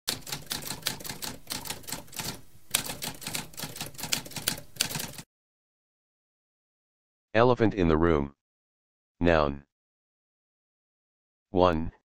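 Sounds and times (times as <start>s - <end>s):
typewriter keys striking: 0.1s - 5.2s.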